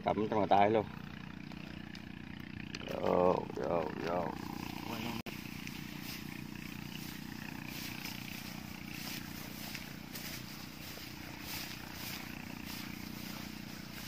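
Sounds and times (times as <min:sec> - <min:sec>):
steady low drone: 0:00.0 - 0:14.0
footsteps through wet plants: 0:05.2 - 0:14.0.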